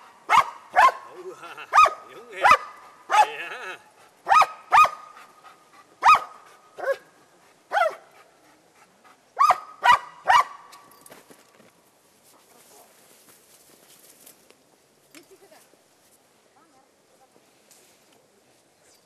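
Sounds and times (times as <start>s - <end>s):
dog barking: 0.3s - 3.5s, 4.2s - 5.2s, 6.0s - 7.0s, 7.7s - 8.0s, 9.4s - 10.7s.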